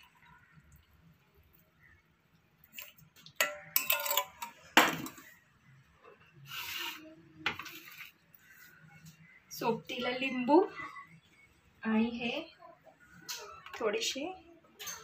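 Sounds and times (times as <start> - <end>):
kitchenware clinking: 3.4 - 5.3, 14.8 - 15.0.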